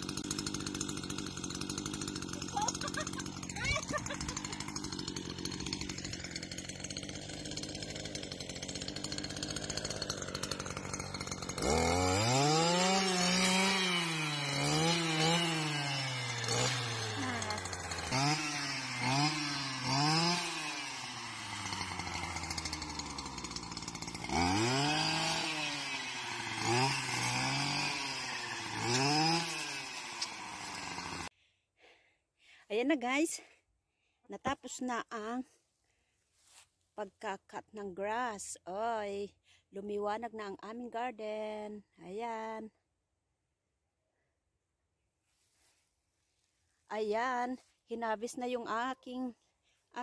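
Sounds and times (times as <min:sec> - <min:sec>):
brush cutter engine revving: 0:00.0 - 0:31.3.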